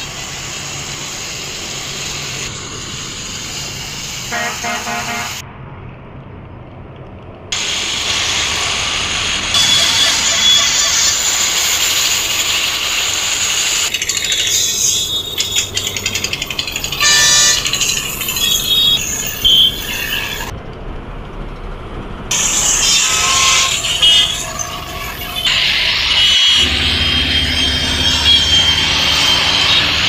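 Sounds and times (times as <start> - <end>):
highway traffic: 0.0 - 30.0
truck horn blasts: 4.3 - 5.4, 9.5 - 11.2, 17.0 - 17.8
rapid clicking rattle: 10.9 - 19.2.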